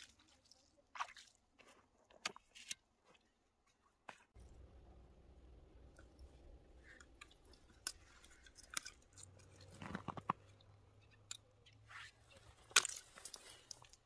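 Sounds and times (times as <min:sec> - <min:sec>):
clicks and crunches on ice: 0:12.4 - 0:14.0.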